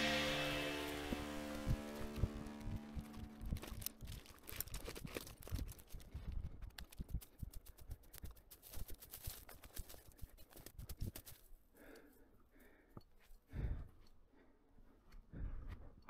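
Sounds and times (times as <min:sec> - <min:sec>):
background music: 0:00.0 - 0:04.2.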